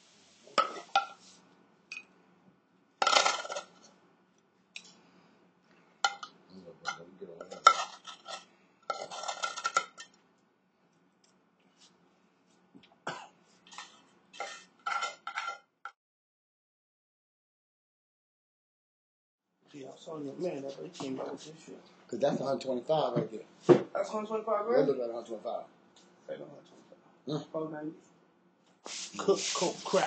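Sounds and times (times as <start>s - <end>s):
utensil scraping cookware: 0.5s - 1.2s, 6.9s - 10.1s, 13.7s - 15.6s
metal utensil clinking on cookware: 6.1s - 10.2s.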